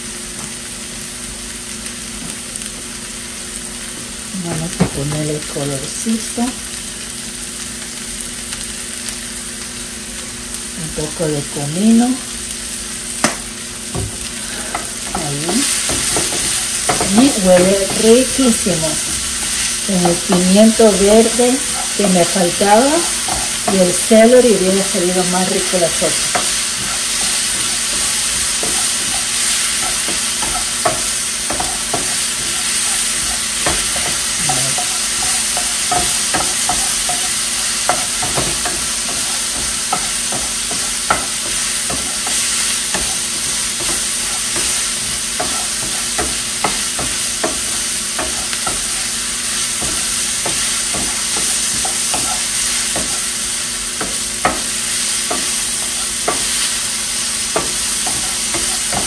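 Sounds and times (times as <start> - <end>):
vegetables sizzling in a frying pan: 0.0 - 59.0
wooden spoon scraping a pan: 14.3 - 56.9.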